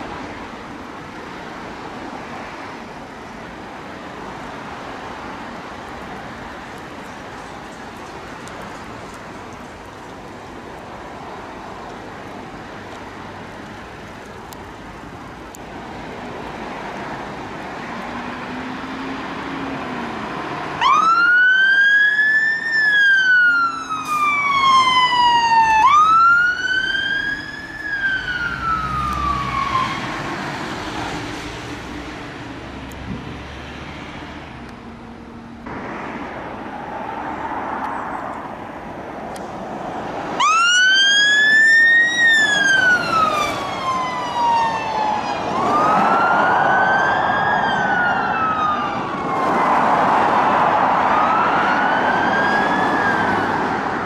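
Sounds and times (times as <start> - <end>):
passing traffic: 0.0 - 54.0
fire engine sirens wailing: 18.0 - 30.9, 40.3 - 54.0.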